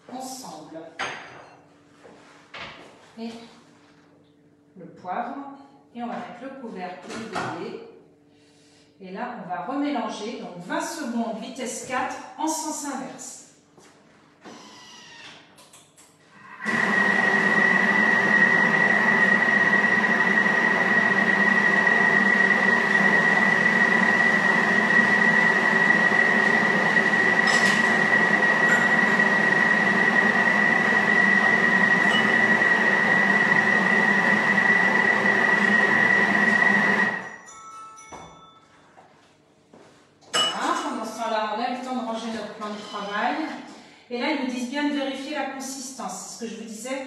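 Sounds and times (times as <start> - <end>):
food processor motor whining: 16.6 - 37.3.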